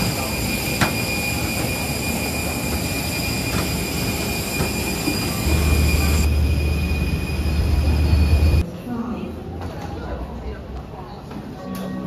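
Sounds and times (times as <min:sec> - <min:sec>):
jet machinery whining: 0:00.0 - 0:08.6.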